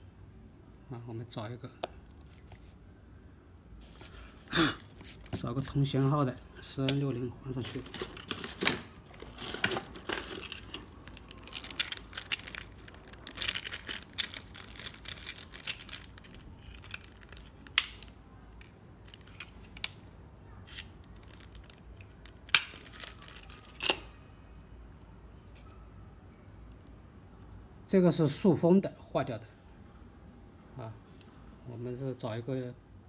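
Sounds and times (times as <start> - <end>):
electronic parts rustling: 7.4 - 19.9, 21.2 - 24.0.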